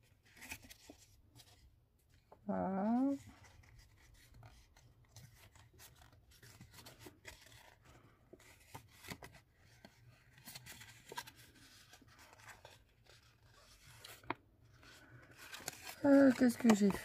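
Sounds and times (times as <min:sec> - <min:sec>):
paper rustling and crackling: 0:00.0 - 0:17.0.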